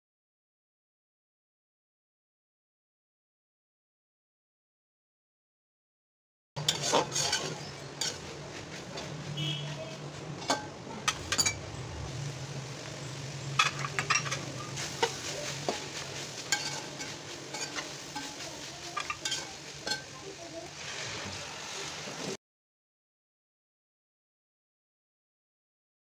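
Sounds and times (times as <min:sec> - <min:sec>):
spatula scraping metal pot: 0:06.6 - 0:11.7, 0:13.6 - 0:22.2
minced meat sizzling in pot: 0:06.6 - 0:22.4.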